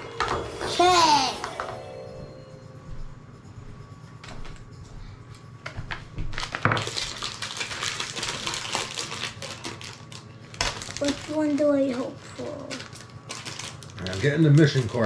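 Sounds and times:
plastic wrapping crinkling: 0:05.9 - 0:15.0.

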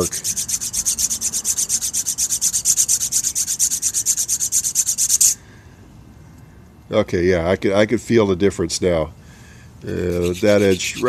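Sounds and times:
nail file scraping metal: 0:00.0 - 0:05.4, 0:09.9 - 0:11.0.

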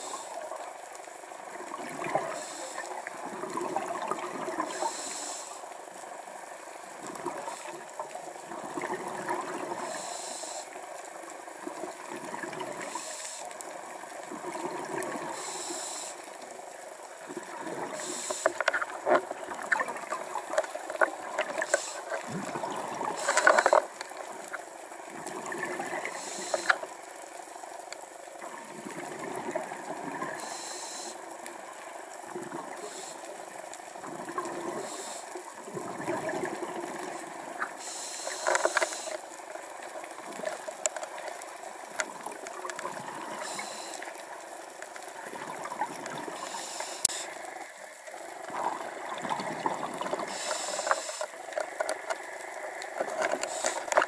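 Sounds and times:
fine crackling of water: 0:00.0 - 0:54.0
scuba regulator hissing inhalation: 0:02.2 - 0:03.0, 0:04.7 - 0:05.6, 0:09.8 - 0:10.8, 0:12.8 - 0:13.5, 0:15.3 - 0:16.3, 0:17.8 - 0:18.7, 0:21.6 - 0:22.2, 0:23.0 - 0:23.9, 0:26.0 - 0:26.9, 0:30.3 - 0:31.2, 0:34.7 - 0:35.4, 0:37.0 - 0:39.3, 0:43.3 - 0:44.1, 0:46.3 - 0:47.4, 0:50.1 - 0:51.4, 0:53.4 - 0:54.0.

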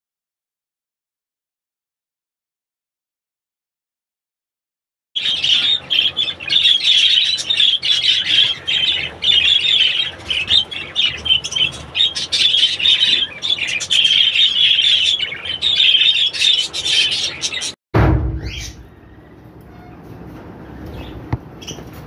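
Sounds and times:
budgerigars chirping and warbling: 0:05.2 - 0:17.8, 0:18.4 - 0:18.9, 0:20.8 - 0:22.0.

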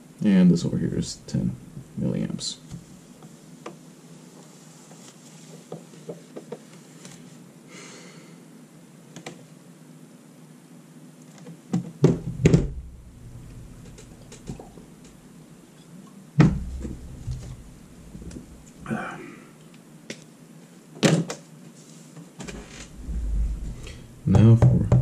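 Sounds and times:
dull knocks on board: 0:16.4 - 0:17.6.

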